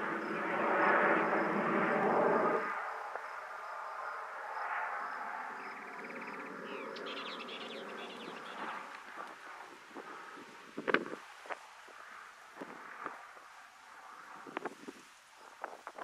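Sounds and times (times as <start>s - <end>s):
propeller plane droning: 0.0s - 14.8s
high chirping calls: 5.6s - 8.9s.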